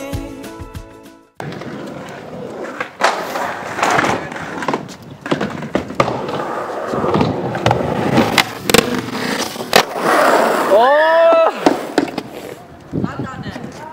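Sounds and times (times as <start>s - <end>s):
skateboard grinding on ramp edge: 1.4s - 12.7s
skateboard wheels rolling on concrete: 1.4s - 13.9s.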